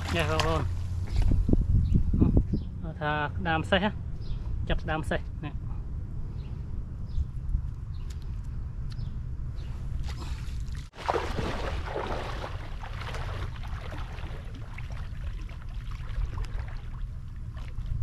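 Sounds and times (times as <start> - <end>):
water splashing from wading: 0.0 - 0.8, 10.0 - 18.0
wind rumble on microphone: 0.0 - 18.0.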